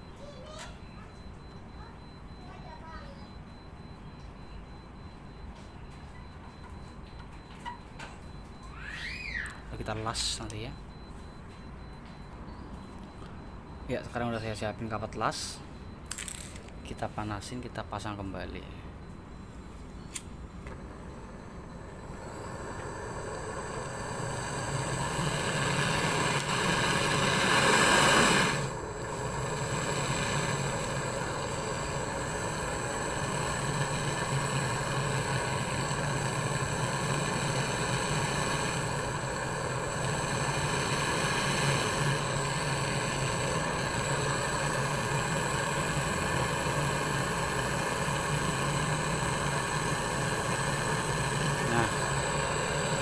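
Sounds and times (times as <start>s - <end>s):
torch flame hissing: 21.0s - 53.0s.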